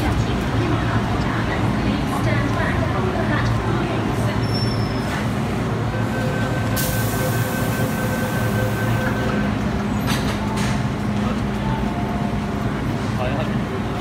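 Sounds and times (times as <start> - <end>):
station and train hum: 0.0 - 14.0
train doors shutting: 4.2 - 12.6.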